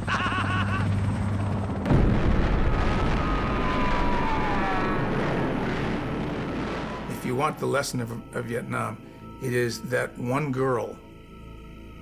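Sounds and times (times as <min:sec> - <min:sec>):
man laughing: 0:00.0 - 0:01.0
helicopter drone: 0:00.0 - 0:07.1
loud boom with rumbling roar: 0:01.8 - 0:08.3
whine falling in pitch: 0:01.9 - 0:07.4.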